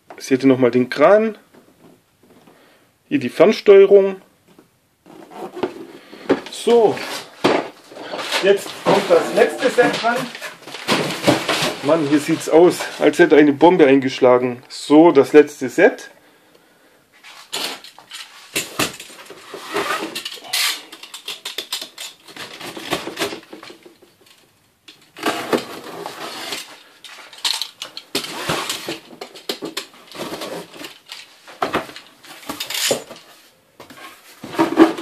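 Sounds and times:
cardboard rustling: 5.0 - 13.4, 28.0 - 35.0
box cutter slitting tape: 18.8 - 23.4, 25.2 - 26.7, 32.5 - 33.2.

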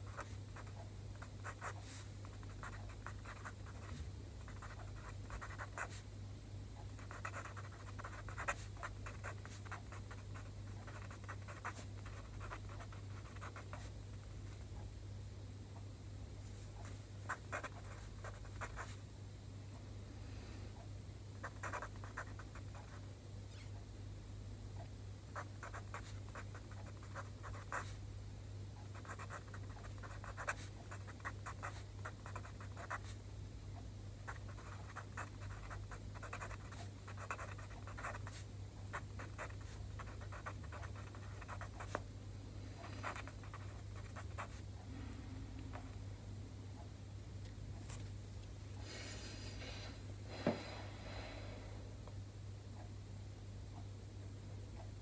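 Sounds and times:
steady low hum: 0.0 - 55.0
pen scratching on paper: 1.4 - 6.0, 7.0 - 13.9, 21.4 - 23.0, 25.4 - 28.0, 29.0 - 33.2, 34.3 - 42.0, 42.8 - 44.6.

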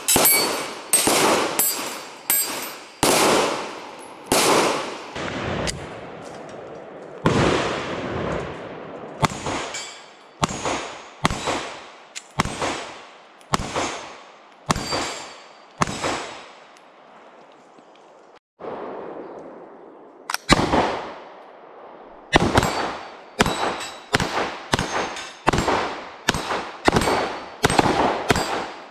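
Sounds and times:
steel targets clanging: 0.0 - 5.1, 9.6 - 11.5, 14.7 - 16.0, 22.6 - 24.2, 24.8 - 25.7
pistol shots with echo: 0.0 - 5.8, 9.2 - 9.8, 10.4 - 16.6, 20.4 - 21.3, 22.3 - 28.9.

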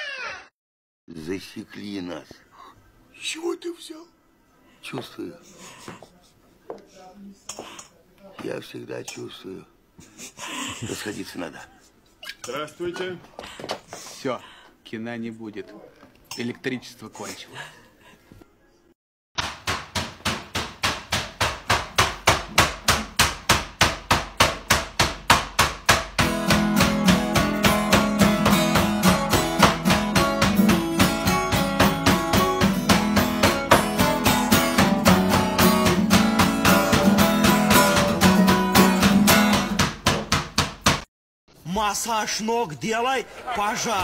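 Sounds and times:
acoustic guitar strumming: 26.1 - 39.8.

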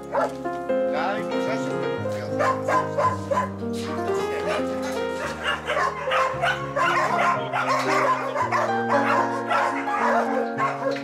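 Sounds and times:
dogs barking and yipping: 0.0 - 0.4, 2.0 - 11.0
background music: 0.0 - 11.0.

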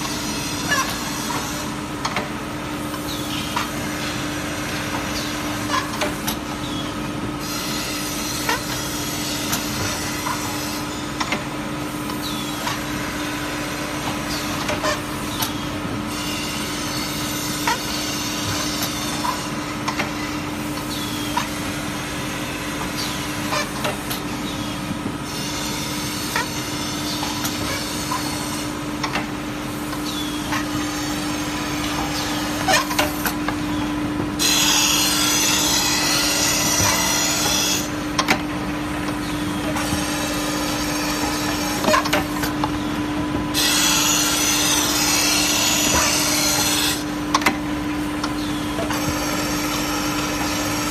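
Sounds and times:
motor hum: 0.0 - 50.9
grinding head rasping on plates: 24.5 - 29.2, 34.4 - 38.2, 43.6 - 47.1.

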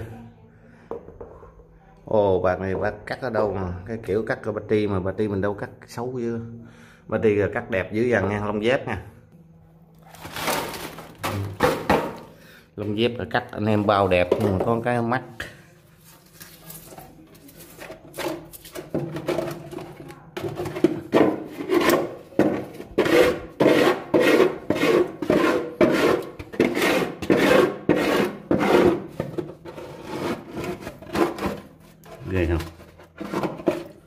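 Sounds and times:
sponge scrubbing oily surface: 21.0 - 31.4.

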